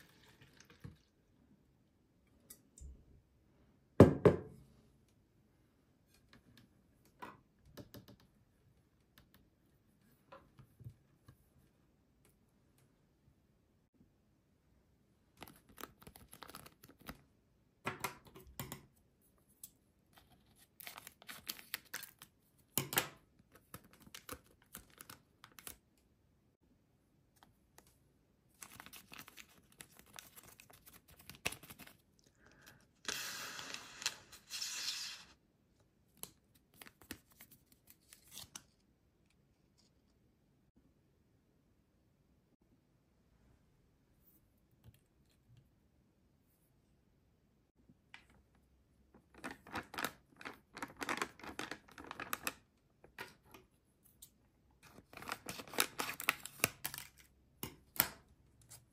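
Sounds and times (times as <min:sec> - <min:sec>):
foil sachet tearing: 0:33.1 - 0:35.3.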